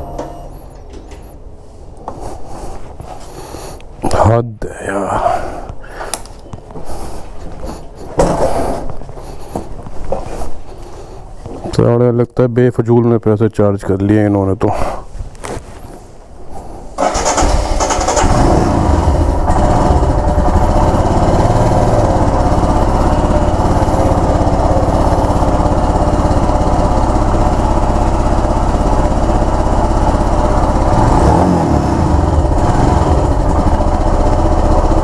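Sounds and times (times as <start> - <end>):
motorcycle engine idling: 17.0 - 35.0.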